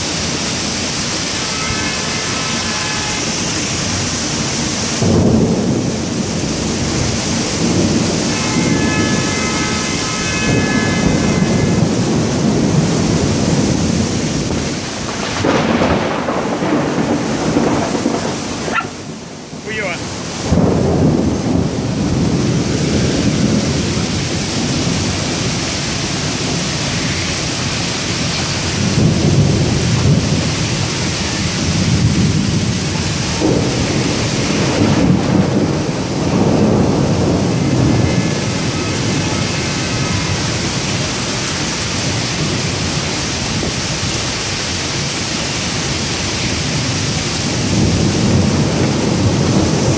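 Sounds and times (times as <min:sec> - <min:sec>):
heavy rain hissing: 0:00.0 - 0:49.9
thunder rumbling: 0:00.0 - 0:49.9.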